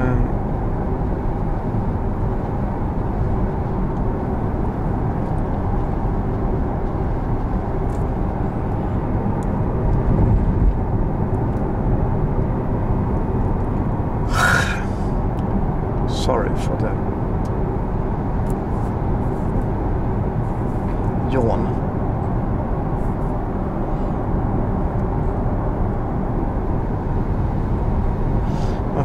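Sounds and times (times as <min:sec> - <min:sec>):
tyre and road rumble: 0:01.8 - 0:15.6.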